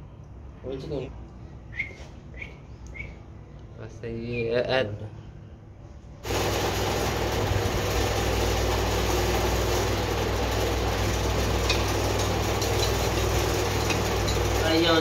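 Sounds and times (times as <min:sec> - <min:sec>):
engine humming: 0:06.2 - 0:15.0.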